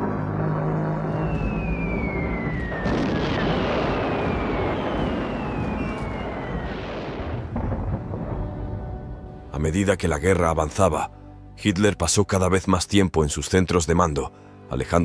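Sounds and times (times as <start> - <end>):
low musical tones: 0.0 - 12.8
rumble of explosions: 0.1 - 9.5
bomb falling whistle: 0.9 - 7.5.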